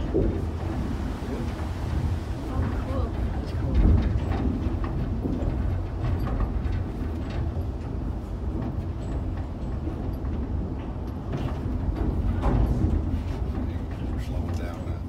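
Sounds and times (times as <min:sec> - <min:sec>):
faint clicks and rattles: 0:00.0 - 0:15.0
hoist cage low rumble: 0:00.0 - 0:15.0.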